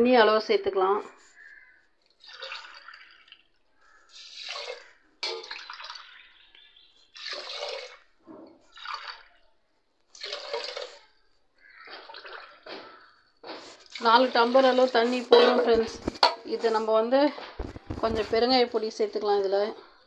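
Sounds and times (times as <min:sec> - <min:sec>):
water splashing pours: 0:02.0 - 0:09.5, 0:10.1 - 0:15.9.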